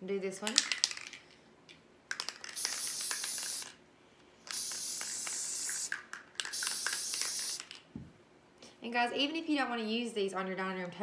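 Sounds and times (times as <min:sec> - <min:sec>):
aerosol spray hissing: 0:02.6 - 0:03.8, 0:04.5 - 0:07.7.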